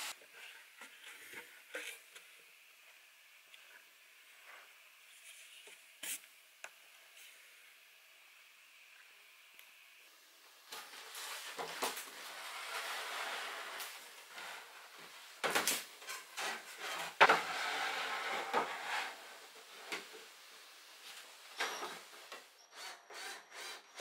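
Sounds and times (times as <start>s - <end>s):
wood scraping on wood: 10.7s - 20.0s.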